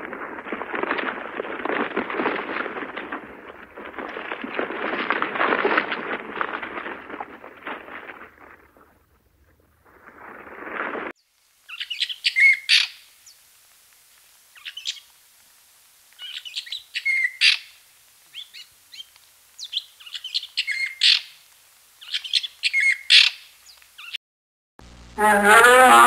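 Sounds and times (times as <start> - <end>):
fruit bats calling: 11.7 - 13.4, 14.5 - 15.1, 16.2 - 21.4, 22.0 - 24.2.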